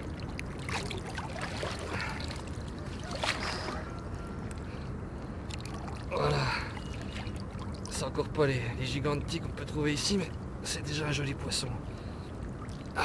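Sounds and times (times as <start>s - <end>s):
water splash: 0.0s - 3.9s
water sloshing and dripping: 0.0s - 8.4s, 11.9s - 13.0s.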